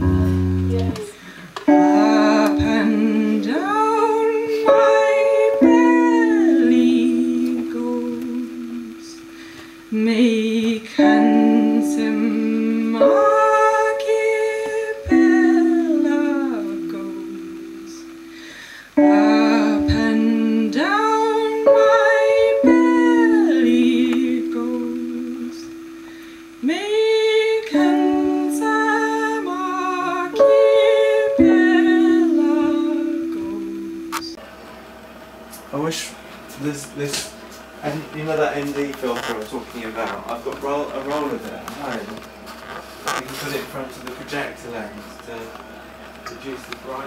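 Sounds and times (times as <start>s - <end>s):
keyboard playing slow chords: 0.0s - 35.1s
woman singing: 1.7s - 18.3s, 19.0s - 34.4s.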